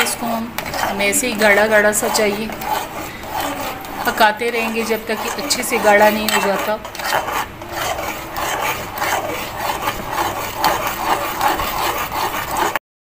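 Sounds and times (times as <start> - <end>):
spoon scraping metal pot: 0.0 - 12.8.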